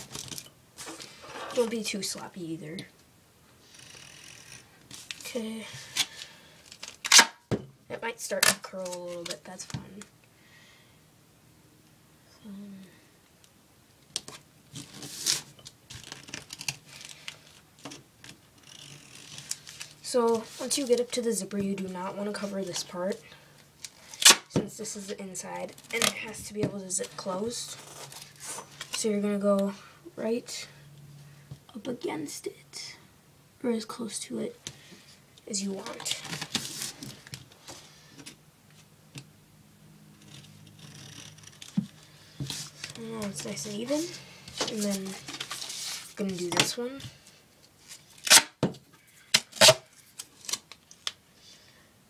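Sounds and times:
tape and plastic rustling: 0.0 - 2.0, 3.6 - 10.1, 14.1 - 29.7, 35.0 - 39.2, 40.2 - 51.2
duct tape ripping off roll: 5.9 - 7.5, 24.1 - 24.5, 47.9 - 48.6, 49.3 - 51.2.

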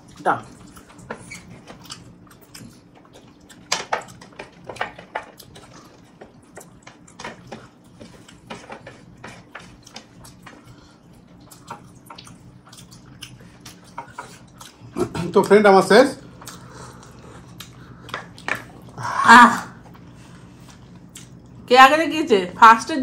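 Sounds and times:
faint steady hum: 0.0 - 23.0
wet chewing and lip smacks: 0.1 - 4.7, 9.4 - 15.0, 16.4 - 19.0, 19.9 - 21.6.

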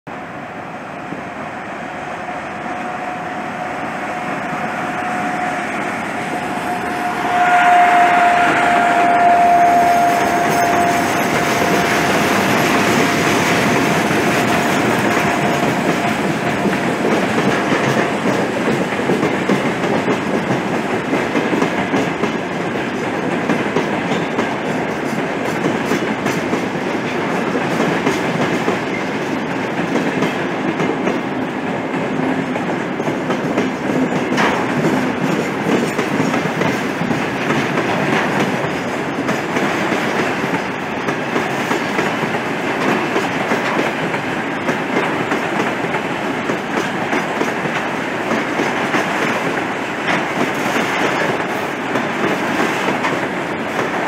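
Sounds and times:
locomotive whine: 0.1 - 21.1
train wheels rumbling and clattering: 2.2 - 54.0.

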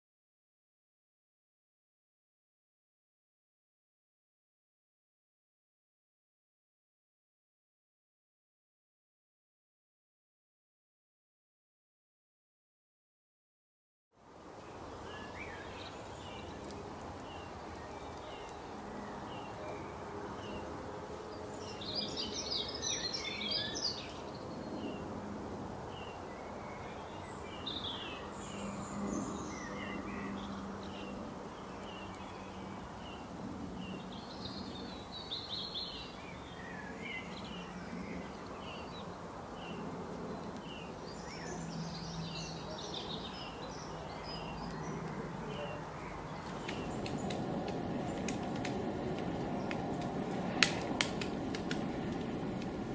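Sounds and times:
small birds chirping: 14.6 - 25.1, 25.9 - 52.1.

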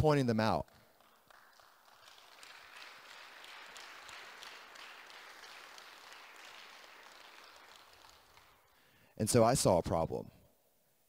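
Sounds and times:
audience applauding faintly: 0.6 - 9.0.

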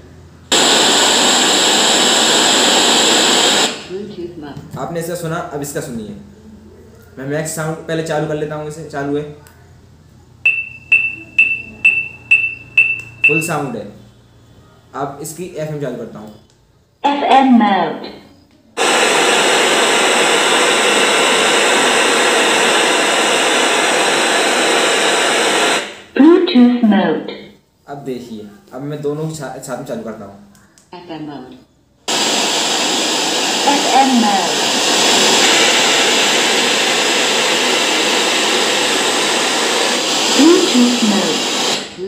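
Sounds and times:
radio static hiss: 0.5 - 4.3, 17.0 - 18.2, 18.8 - 27.6, 32.1 - 42.0.

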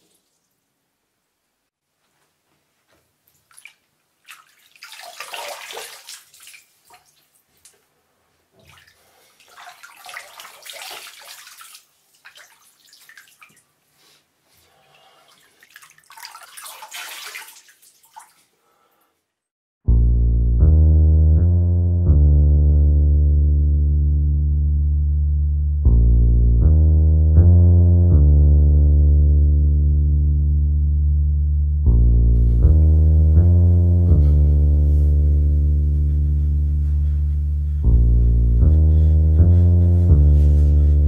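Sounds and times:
hands splashing water in basin: 3.3 - 7.8, 8.6 - 13.7, 15.2 - 18.5
loud music chords: 31.9 - 36.8.

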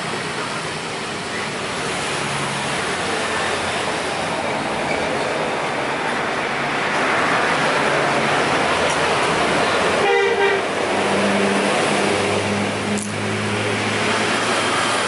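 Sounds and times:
heavy road traffic passing: 0.0 - 15.0
vehicle horn toot: 10.0 - 10.7.

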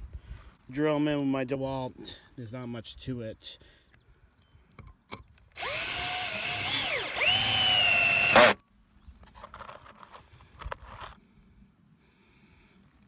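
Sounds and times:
cordless drill driving screw: 5.5 - 8.6.

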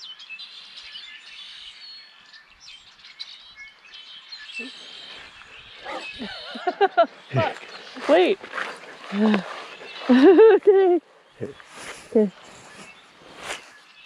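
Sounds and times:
birds chirping and singing: 0.0 - 14.0
person speaking: 7.3 - 8.4, 9.1 - 9.5, 10.1 - 12.4.

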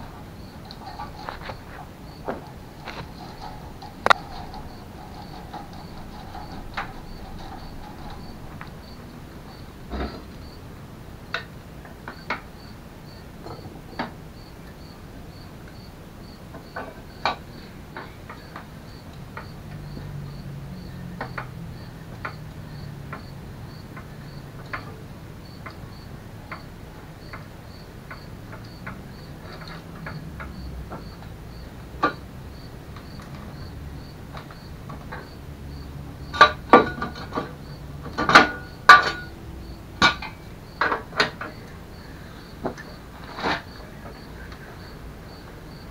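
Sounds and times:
metal tools clinking: 0.0 - 9.2, 36.3 - 39.4.

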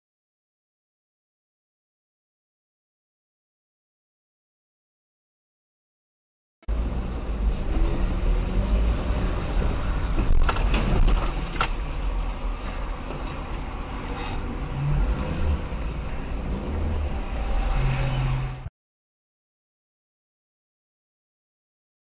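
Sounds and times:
car engine and road rumble: 6.7 - 18.7.

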